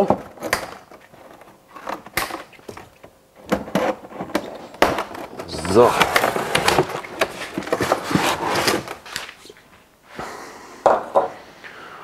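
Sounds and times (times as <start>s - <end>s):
cardboard box being opened: 5.3s - 9.4s.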